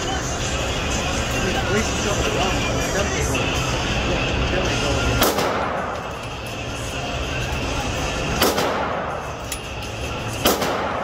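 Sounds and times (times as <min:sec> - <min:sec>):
handgun shots with echo: 0:05.2 - 0:06.0, 0:08.4 - 0:09.3, 0:10.4 - 0:11.0.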